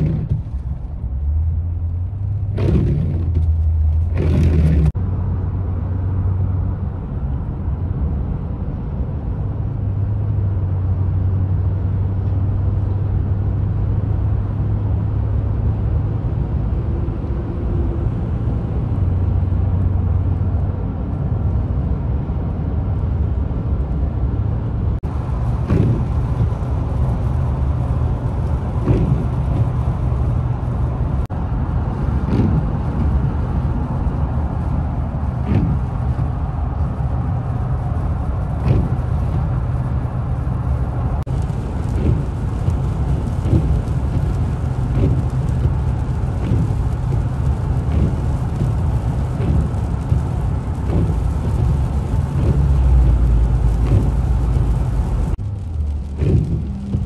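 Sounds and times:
engine and tyre drone: 0.0s - 57.0s
tyre hiss on wet road: 25.1s - 57.0s.

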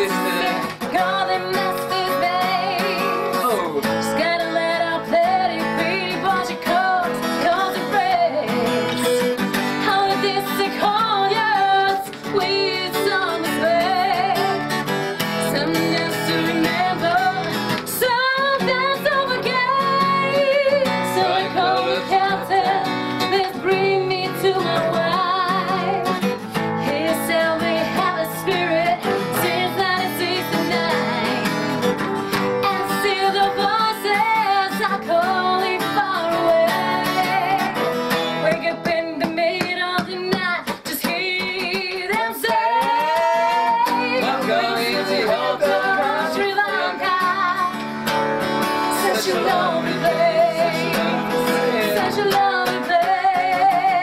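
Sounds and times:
woman singing: 0.0s - 47.9s, 48.6s - 54.0s
strummed acoustic guitar: 0.0s - 54.0s.

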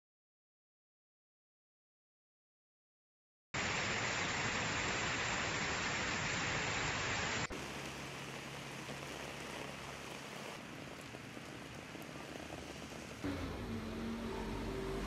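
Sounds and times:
floodwater rushing: 3.6s - 15.0s
heavy rain on street: 3.6s - 15.0s.

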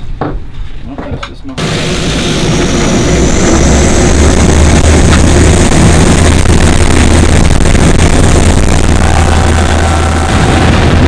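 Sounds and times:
aircraft engines at full power: 1.6s - 11.0s
wind rushing: 1.6s - 11.0s.

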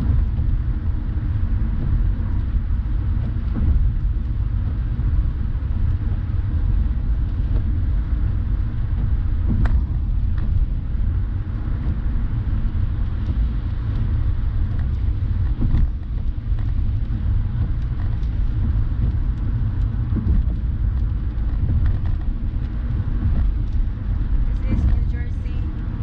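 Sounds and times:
road rumble and tyre noise: 0.0s - 26.0s.

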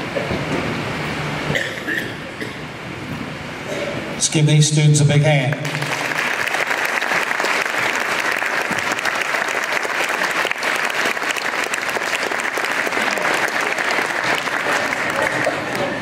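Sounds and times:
audience applause: 5.5s - 16.0s.

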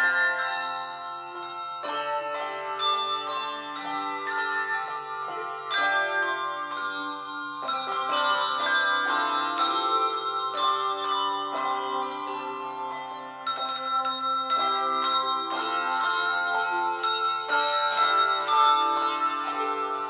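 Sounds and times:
handbell choir playing: 0.0s - 20.0s.

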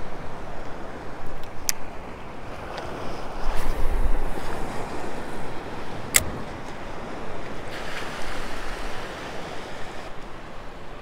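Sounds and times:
small waves washing: 0.0s - 11.0s
wind on microphone: 0.0s - 11.0s.

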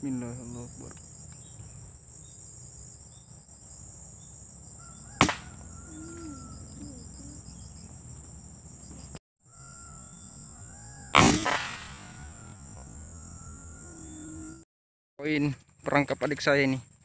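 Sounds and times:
insect chirring: 0.0s - 14.6s
air rifle shot: 5.2s - 5.6s, 11.1s - 12.1s.

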